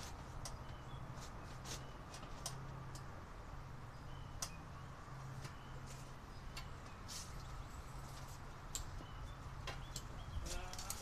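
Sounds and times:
faint bird chirps: 3.9s - 10.7s.

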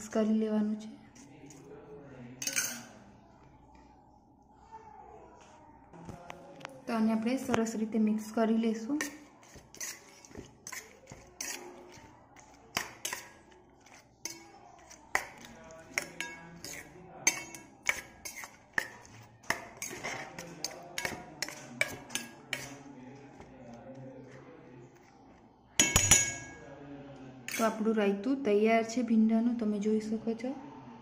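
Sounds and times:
metal spoon clinking in steel bowl: 2.4s - 3.0s, 8.9s - 23.5s, 25.8s - 26.7s, 27.5s - 27.8s.

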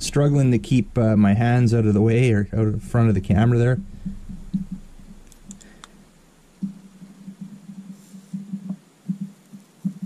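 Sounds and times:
faint clicks: 4.0s - 6.0s.

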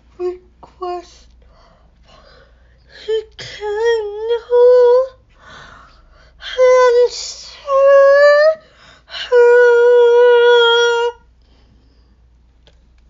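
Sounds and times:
woman singing long held notes: 6.4s - 11.3s.

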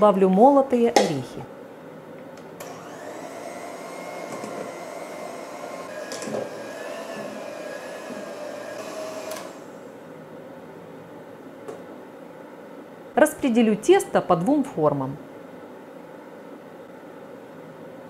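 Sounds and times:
electric hand mixer humming: 2.6s - 9.9s.

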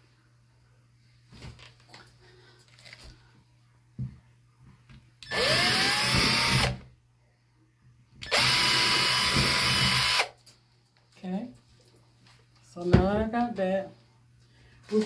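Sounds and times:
cordless drill whining: 5.2s - 6.8s, 8.2s - 10.3s.

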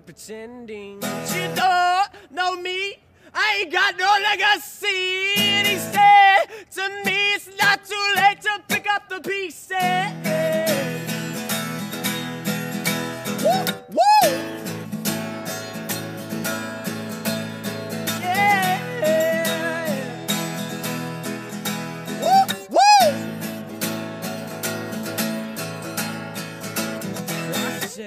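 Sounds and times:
acoustic guitar strumming: 1.0s - 2.0s, 5.2s - 28.0s
person singing: 5.1s - 11.1s, 13.4s - 14.6s, 18.1s - 20.7s, 21.3s - 23.4s, 27.3s - 28.0s.

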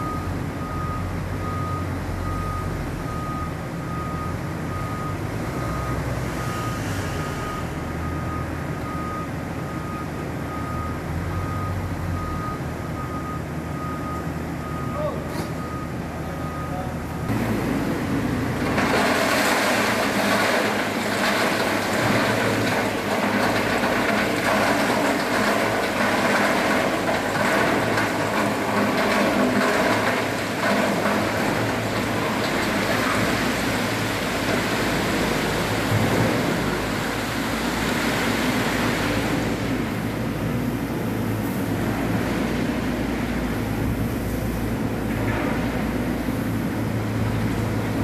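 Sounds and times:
rock sliding off truck bed: 18.6s - 37.2s.

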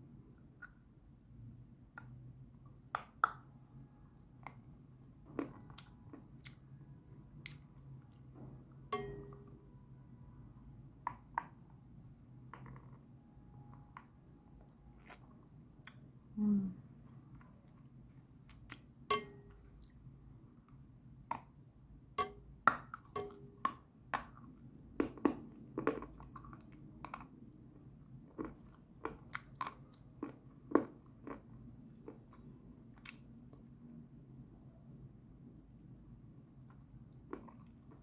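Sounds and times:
chewing and crunching: 25.0s - 27.4s, 28.0s - 33.7s.

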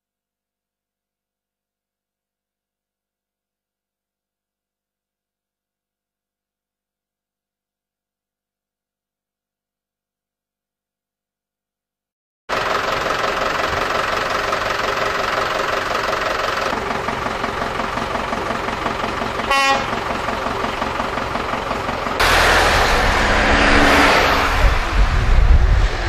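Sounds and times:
rumbling outdoor noise: 16.7s - 26.0s
car horns honking: 19.4s - 20.1s.

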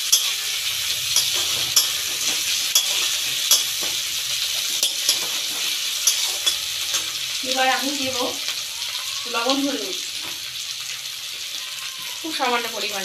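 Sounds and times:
metal spatula scraping pan: 0.0s - 8.3s
vegetables sizzling in oil: 0.0s - 13.0s.

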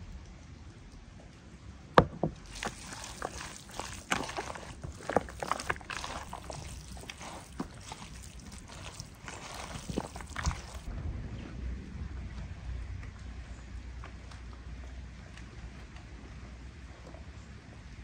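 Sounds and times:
hands squelching raw meat: 2.4s - 10.9s.

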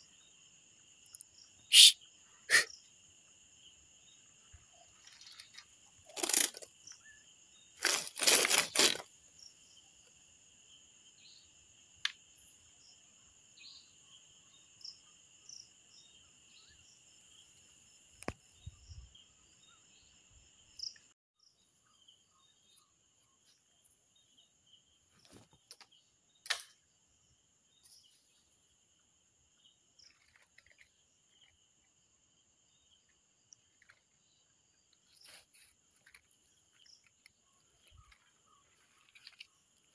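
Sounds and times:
crickets trilling: 0.0s - 39.9s
sharp click: 26.4s - 26.8s.

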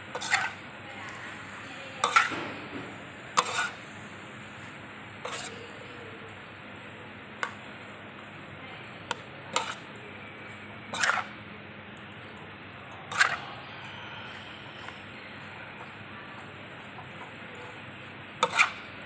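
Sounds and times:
metal spatula scraping a wok: 0.1s - 0.6s, 2.0s - 2.4s, 3.4s - 3.9s, 5.2s - 5.7s, 9.5s - 9.9s, 10.9s - 11.3s, 13.1s - 13.5s, 18.4s - 18.9s.

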